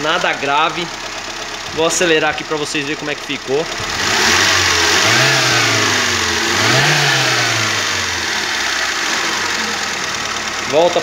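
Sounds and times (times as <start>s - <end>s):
car engine revving and idling: 0.0s - 11.0s
person talking: 10.6s - 11.0s.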